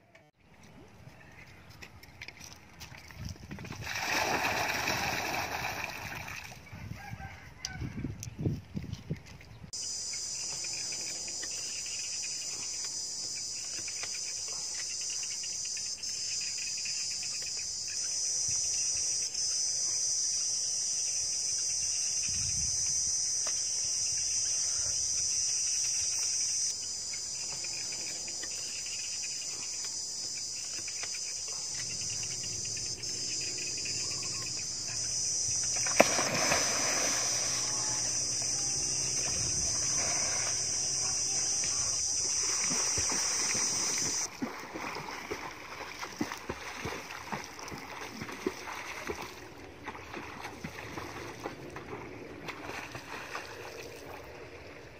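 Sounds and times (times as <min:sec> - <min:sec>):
high-pitched insect chorus: 0:03.8 - 0:06.5, 0:09.8 - 0:49.5
water gushing into pool: 0:03.8 - 0:06.5, 0:35.8 - 0:37.7.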